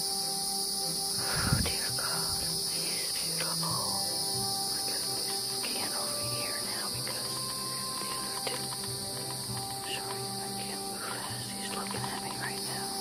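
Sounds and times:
insect chorus buzzing: 0:00.0 - 0:13.0.

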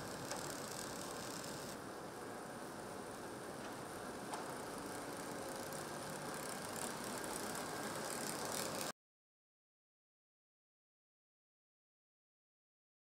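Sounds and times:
machinery running: 0:04.3 - 0:08.9.

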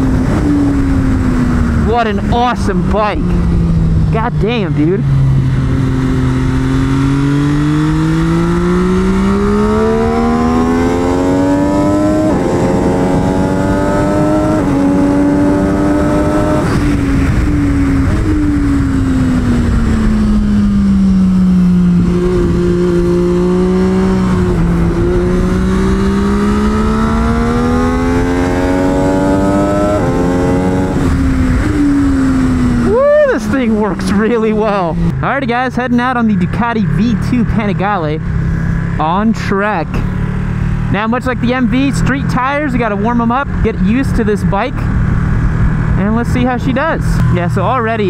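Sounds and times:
wind rush: 0:00.0 - 0:35.2
motorcycle engine accelerating: 0:00.0 - 0:48.0.

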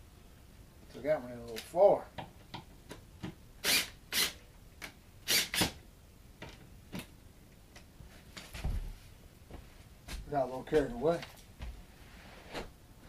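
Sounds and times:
drill scraping noises: 0:03.6 - 0:04.4, 0:05.3 - 0:05.7.

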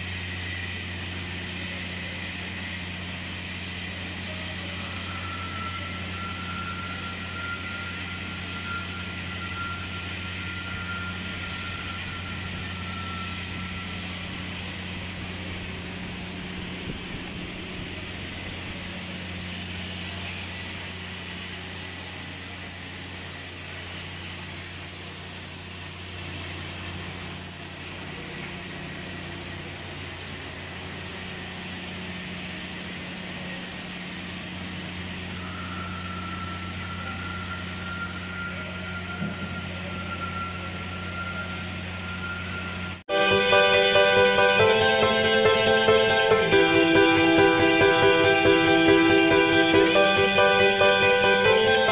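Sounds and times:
hiss: 0:00.0 - 0:34.6.

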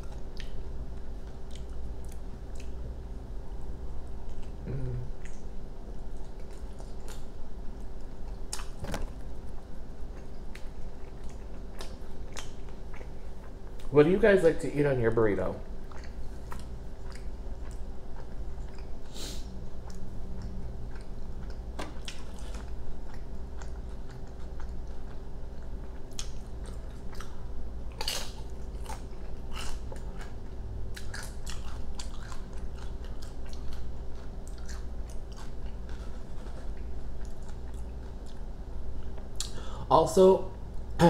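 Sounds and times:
person chewing: 0:00.0 - 0:02.9, 0:04.2 - 0:08.8, 0:09.5 - 0:13.9, 0:15.8 - 0:39.7
steady low hum: 0:00.0 - 0:41.0
crunching chips: 0:27.9 - 0:30.4.

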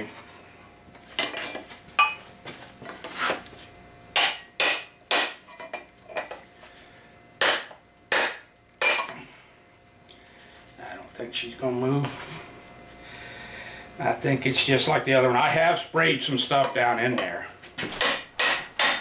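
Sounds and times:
hammer tapping metal: 0:02.0 - 0:02.2, 0:04.2 - 0:05.5, 0:07.4 - 0:09.2, 0:18.0 - 0:19.0.

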